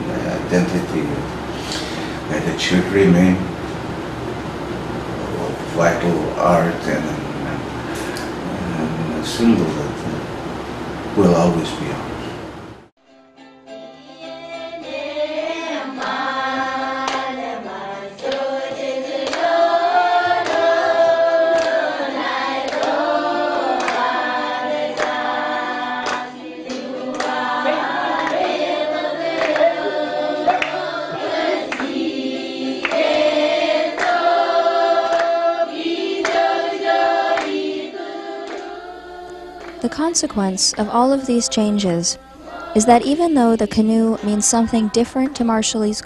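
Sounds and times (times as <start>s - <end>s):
group singing in chorus: 14.2s - 45.9s.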